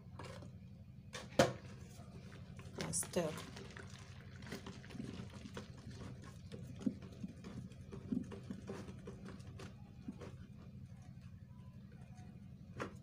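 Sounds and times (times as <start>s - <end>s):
stirrer knocking in plastic bowl: 2.8s - 10.6s.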